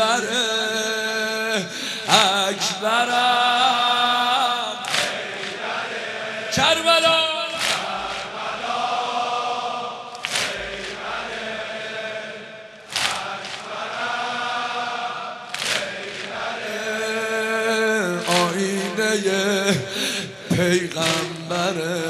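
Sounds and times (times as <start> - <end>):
man chanting a lament: 0.0 - 5.4, 6.4 - 8.1, 16.6 - 22.0
congregation singing: 0.0 - 22.0
unison chest-beating slaps: 4.8 - 5.7, 7.6 - 8.6, 10.1 - 11.1, 12.8 - 14.0, 15.5 - 16.7, 18.2 - 19.1, 20.5 - 21.7.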